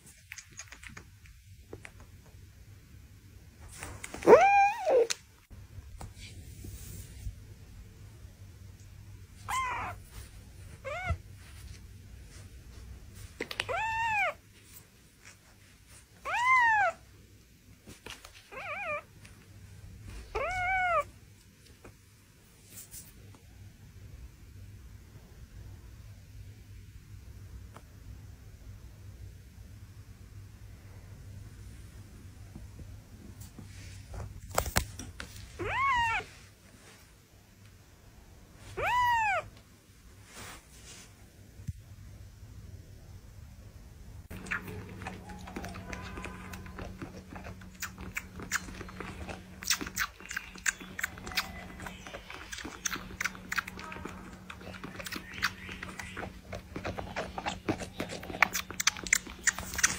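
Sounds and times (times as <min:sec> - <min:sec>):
kitten mewing: 0:04.1 - 0:05.2, 0:09.5 - 0:10.0, 0:13.6 - 0:14.4, 0:16.2 - 0:17.0, 0:20.3 - 0:21.1, 0:35.6 - 0:36.3, 0:38.8 - 0:39.5.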